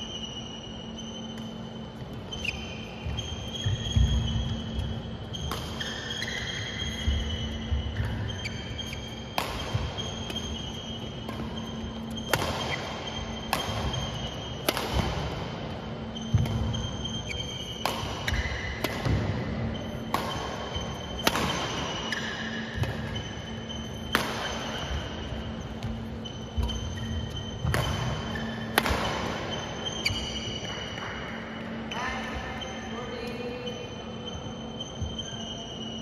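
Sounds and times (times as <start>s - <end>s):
rackets hitting a shuttlecock: 2.4s - 15.5s, 16.2s - 31.2s.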